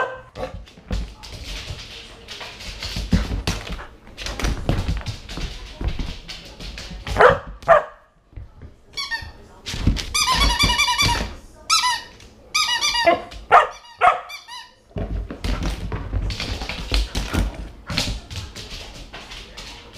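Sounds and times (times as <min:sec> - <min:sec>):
paws scrabbling on hard floor: 0:00.3 - 0:14.2, 0:14.9 - 0:19.9
squeaky toy squeaking: 0:10.2 - 0:14.8.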